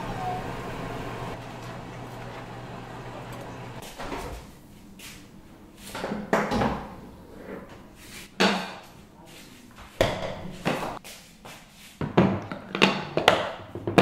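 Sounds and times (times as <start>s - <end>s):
refrigerator low hum: 0.0s - 5.8s.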